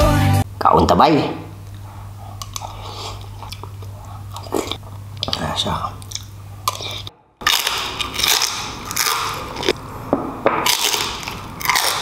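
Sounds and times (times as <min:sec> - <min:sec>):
crackly biting and chewing: 0:01.7 - 0:09.9, 0:10.6 - 0:12.0.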